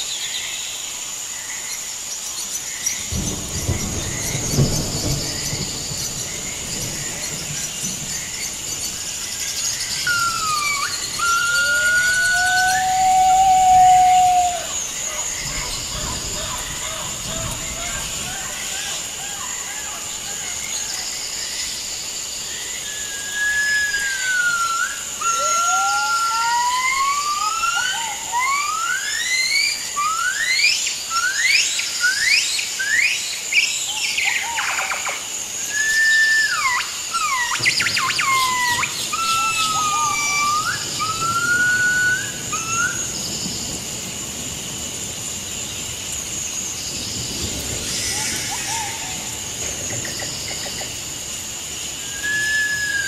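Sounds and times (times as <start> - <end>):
high insect drone: 0.0 - 53.0
bird whistling: 9.9 - 14.8, 35.8 - 43.0, 52.1 - 53.0.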